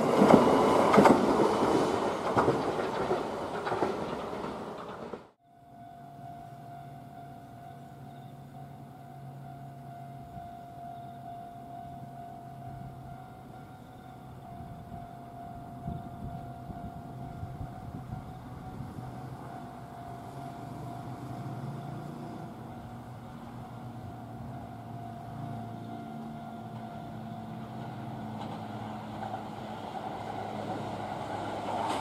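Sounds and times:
train rumble approaching: 0.0s - 32.0s
steady high-pitched tone: 5.4s - 29.1s.

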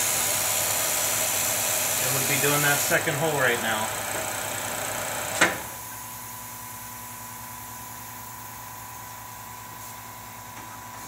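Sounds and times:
milling machine humming: 0.0s - 6.2s.

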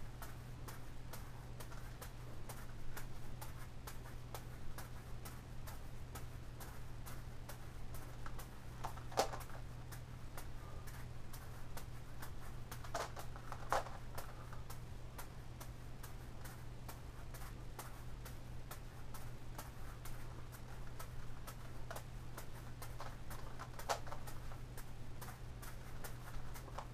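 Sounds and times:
steady low hum: 0.0s - 26.9s
juggling balls landing in hand: 0.2s - 26.9s
plastic puzzle clicks: 12.8s - 14.4s.

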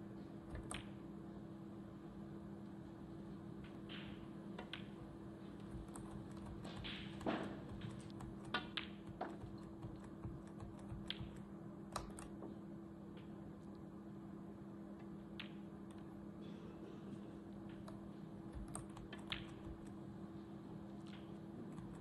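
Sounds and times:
steady low hum: 0.0s - 22.0s
sharp clicks: 5.6s - 12.4s.

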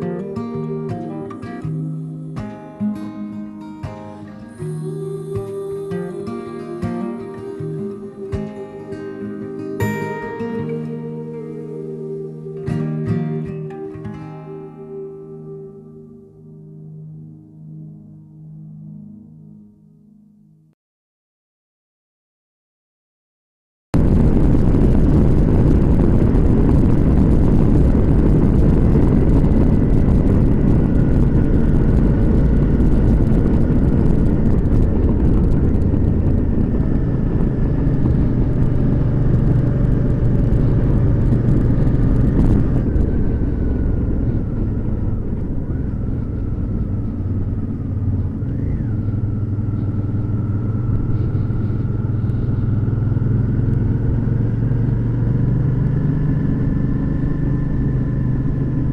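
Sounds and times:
motorcycle engine running: 24.0s - 58.9s
wind noise on microphone: 24.0s - 58.9s.

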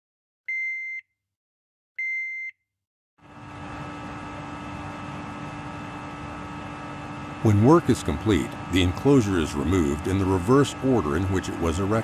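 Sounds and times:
electronic alarm beep: 0.5s - 1.1s, 2.0s - 2.6s
industrial hum with rushing air: 3.2s - 12.0s.

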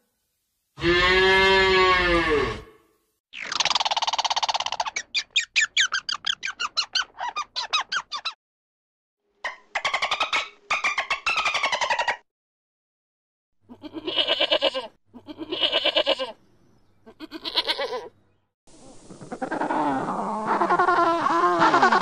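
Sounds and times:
sheep bleating: 0.8s - 2.8s, 13.7s - 16.4s, 17.1s - 18.1s
steady hiss: 18.7s - 19.8s
overlapping animal calls: 19.0s - 22.0s.

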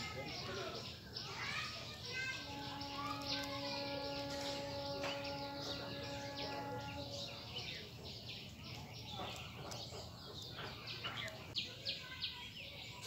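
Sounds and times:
birds chirping: 0.0s - 13.0s
long held note: 2.4s - 7.7s.

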